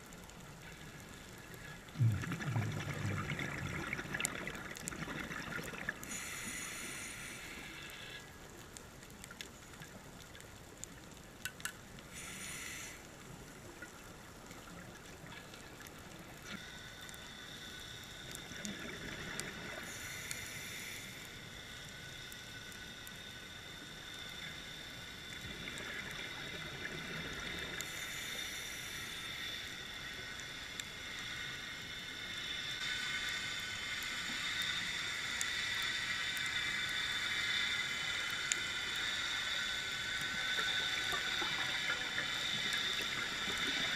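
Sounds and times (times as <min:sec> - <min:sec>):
regulator hiss on inhale: 0:00.0 - 0:10.0, 0:10.9 - 0:43.9
scattered crackling clicks: 0:00.0 - 0:43.9
bubbling exhales: 0:01.9 - 0:07.6.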